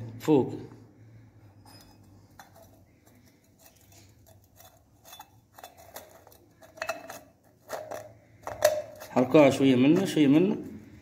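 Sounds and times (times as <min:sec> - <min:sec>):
light metallic clicks and scrapes: 0:01.5 - 0:10.3.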